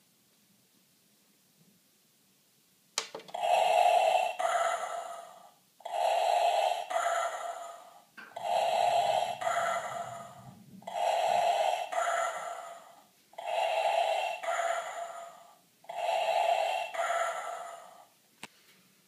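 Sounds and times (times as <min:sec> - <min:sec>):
respirator breathing through speaker: 0:03.3 - 0:18.2.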